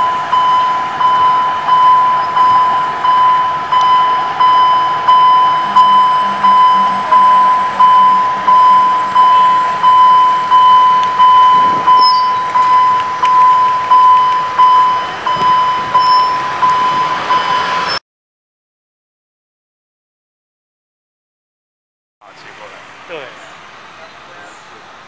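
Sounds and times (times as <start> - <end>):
level crossing bell ringing: 0.0 - 17.9.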